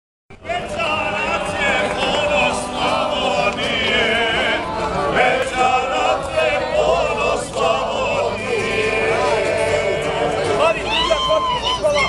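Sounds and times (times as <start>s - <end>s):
group singing folk song: 0.3s - 11.2s.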